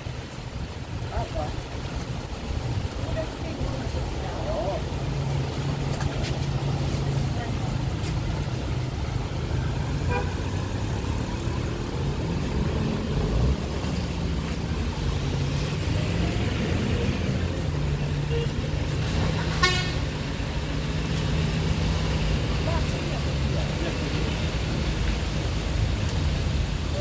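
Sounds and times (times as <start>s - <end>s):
vehicle horn toots: 10.1s - 10.4s, 19.5s - 20.1s.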